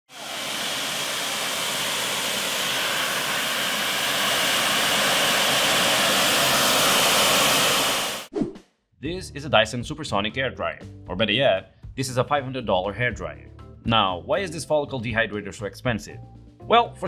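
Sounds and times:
jet engine rushing hiss: 0.1 - 8.3.

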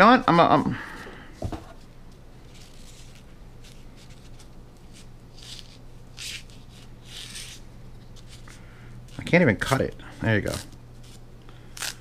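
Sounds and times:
steady low hum: 0.0 - 12.0
knife scratching foam: 2.5 - 7.6.

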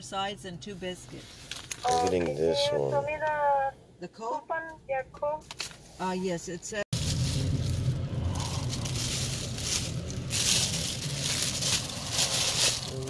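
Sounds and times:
car engine drone: 6.9 - 13.0
rustling and crackling on microphone: 7.0 - 13.0.

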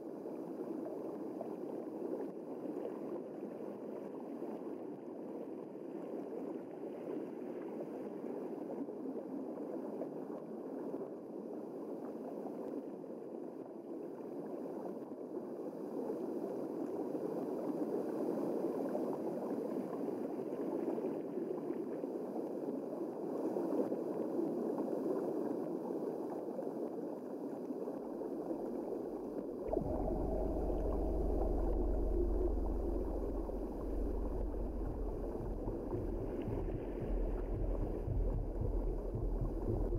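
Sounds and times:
underwater rushing water: 17.0 - 39.9
low steady hum: 29.1 - 39.9.

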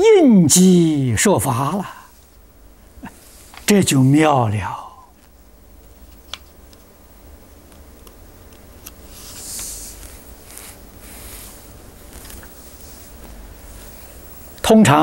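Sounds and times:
soft hiss: 0.0 - 15.0
steady hum: 0.0 - 15.0.

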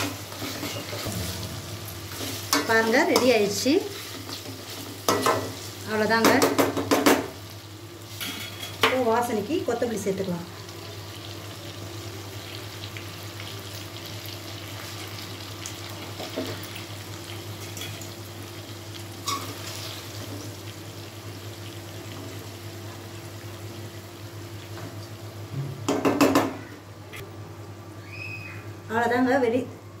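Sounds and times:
steady low hum: 0.0 - 6.1
meat sizzling in oil: 0.0 - 25.5.

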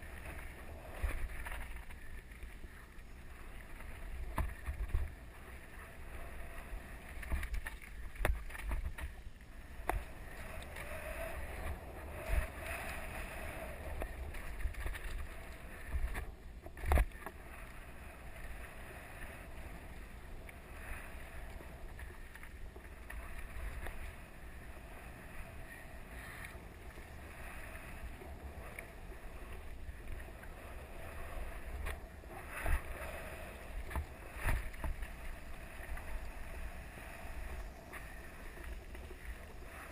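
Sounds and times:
wind on microphone: 9.7 - 17.2.

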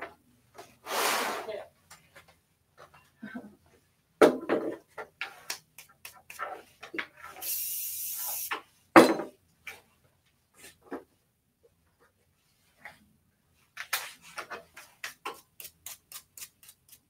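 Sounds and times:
objects knocking and clattering: 4.2 - 5.5, 8.9 - 9.9
spray hiss: 7.4 - 8.6.

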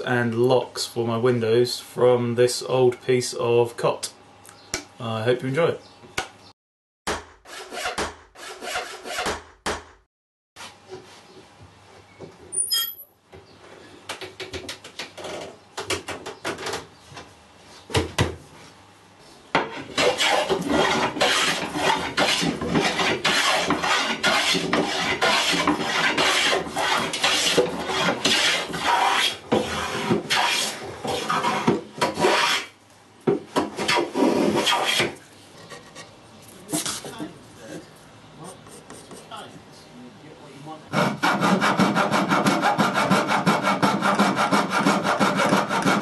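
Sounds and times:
hand plane shaving wood: 7.5 - 9.3, 19.8 - 32.7, 40.9 - 46.0.

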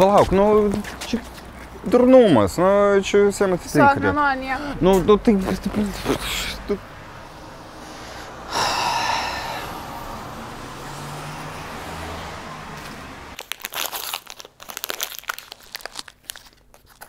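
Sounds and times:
plastic wrappers crinkling and tearing: 13.4 - 17.0.

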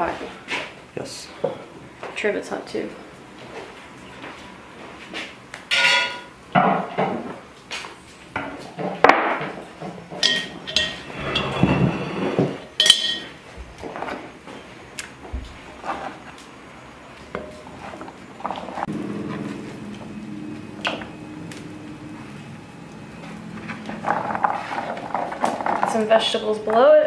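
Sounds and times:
cast iron cookware clanking: 5.7 - 7.2, 8.4 - 13.4, 17.3 - 19.6
wooden spoon scraping iron pot: 10.2 - 13.3, 17.3 - 19.6, 23.5 - 26.9.

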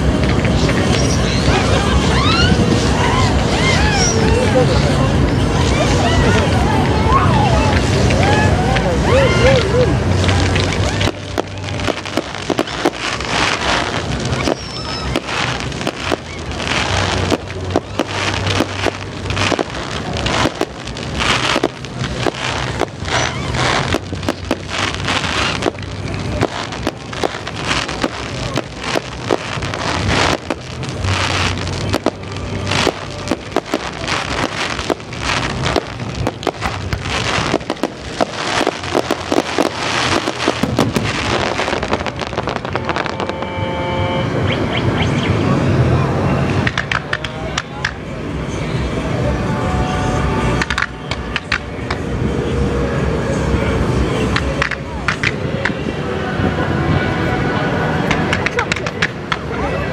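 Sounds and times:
fireworks crackling and popping: 0.0 - 45.0, 46.5 - 48.1, 50.0 - 55.8, 58.0 - 59.6
low steady hum: 0.0 - 46.6.

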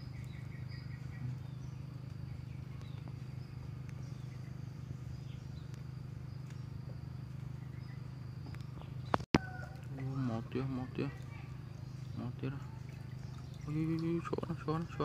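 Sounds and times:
constant low rumble: 0.0 - 15.0
insects trilling: 0.0 - 15.0.

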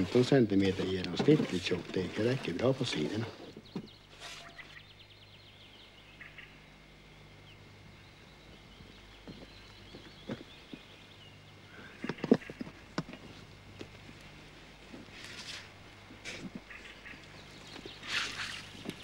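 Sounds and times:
wooden wheelbarrow knocking: 0.0 - 3.9
steady low hum: 0.0 - 19.0.

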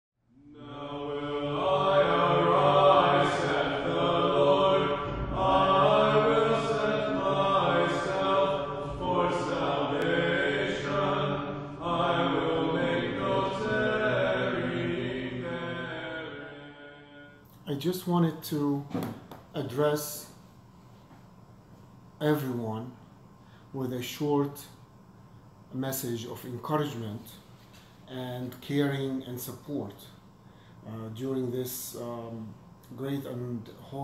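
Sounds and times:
chanted singing: 0.3 - 17.4
steady low drone: 0.3 - 18.4.

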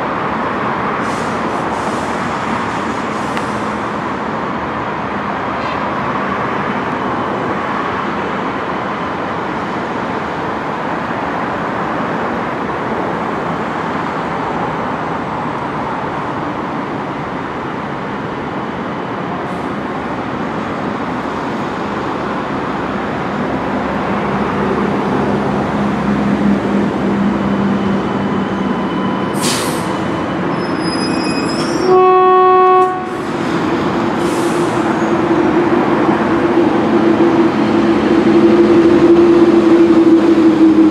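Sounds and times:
train background rumble: 0.0 - 40.9
train horn blast: 31.6 - 33.3.

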